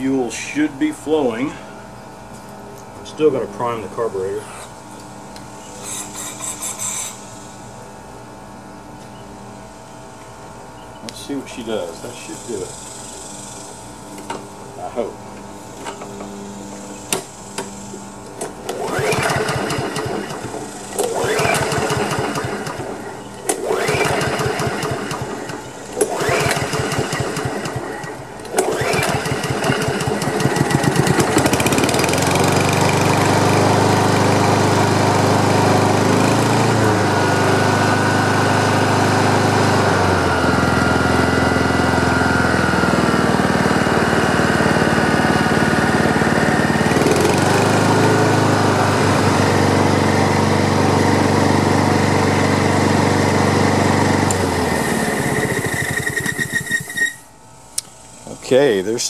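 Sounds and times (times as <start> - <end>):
lawn mower engine running: 12.1 - 57.3
starter cord pulls: 18.4 - 33.4, 54.2 - 57.2.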